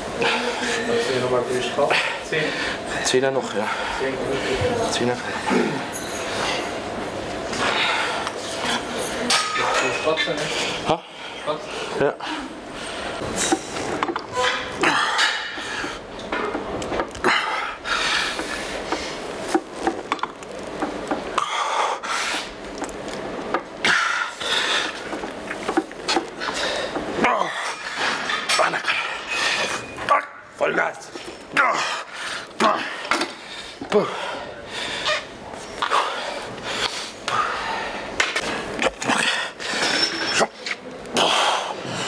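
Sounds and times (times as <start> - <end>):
hard breathing: 0.2 - 1.1, 1.7 - 6.9, 7.5 - 13.9, 17.2 - 19.3, 23.8 - 25.2, 26.1 - 30.0, 31.7 - 40.4.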